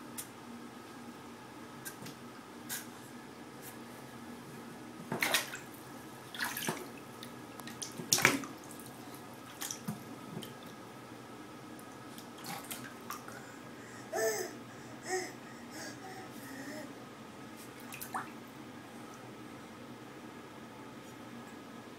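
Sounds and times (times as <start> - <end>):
bathwater splashing: 5.1 - 10.7, 12.1 - 13.3, 17.8 - 18.4.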